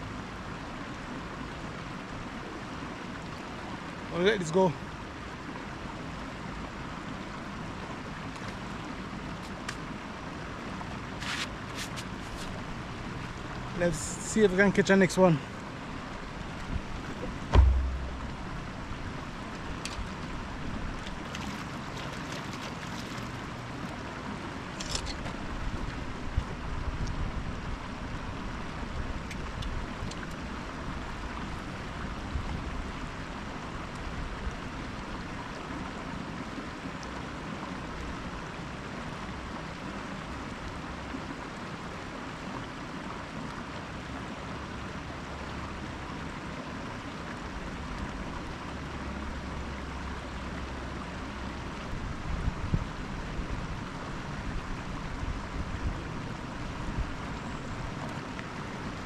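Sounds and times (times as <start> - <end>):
rushing outdoor noise: 0.0 - 59.0
low rumble: 17.2 - 19.4.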